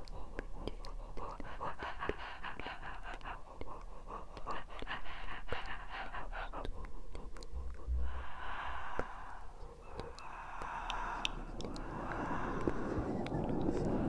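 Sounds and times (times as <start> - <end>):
close breathing: 0.0 - 14.0
mouth clicks: 0.0 - 14.0
low microphone rumble: 7.5 - 14.0.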